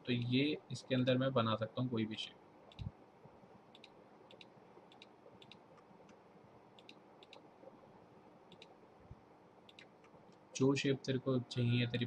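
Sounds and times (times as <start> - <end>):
faint computer mouse clicks: 2.7 - 2.9, 3.7 - 6.2, 6.8 - 7.5, 8.5 - 8.8, 9.6 - 10.4.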